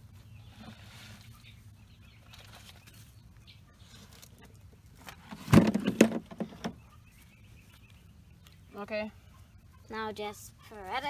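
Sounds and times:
compost dumped with rush and thump: 0:05.2 - 0:06.6.

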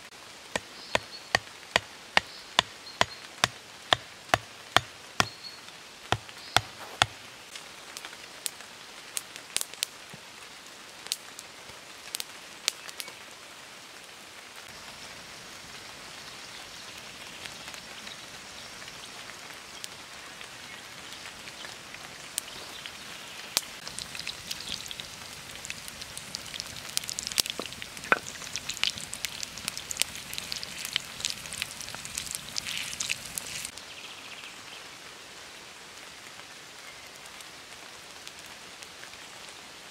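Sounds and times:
campfire crackling and popping: 0:00.0 - 0:10.4, 0:11.0 - 0:11.4, 0:19.8 - 0:33.8
hatchet striking wood: 0:00.6 - 0:05.4
food sizzling in a pan: 0:22.5 - 0:33.8.

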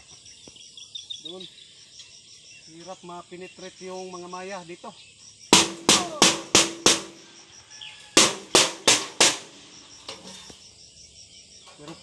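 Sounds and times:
stick clanging on metal sheet: 0:05.6 - 0:07.2, 0:08.2 - 0:10.6.

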